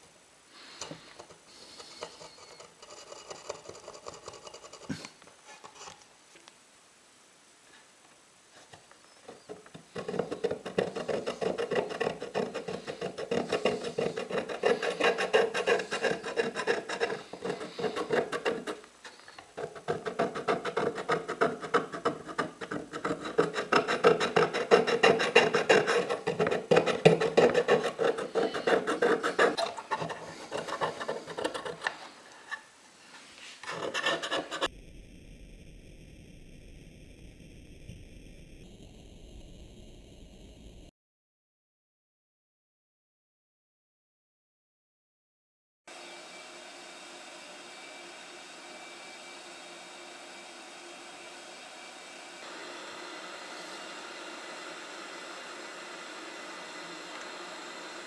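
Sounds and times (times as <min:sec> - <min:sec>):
steel blade scraping wood: 0:01.5 - 0:06.0, 0:09.3 - 0:32.7, 0:33.4 - 0:34.7.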